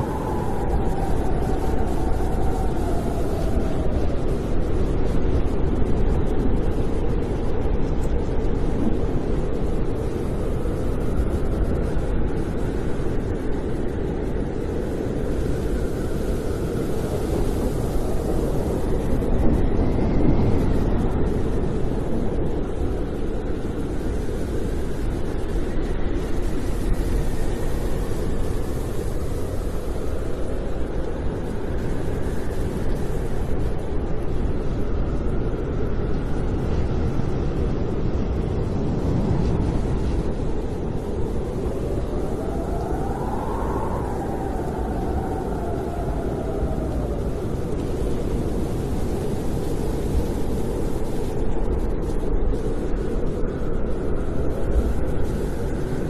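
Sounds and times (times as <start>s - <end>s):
faint whistling wind tones: 0.0s - 56.0s
snowstorm wind rushing: 0.0s - 56.0s.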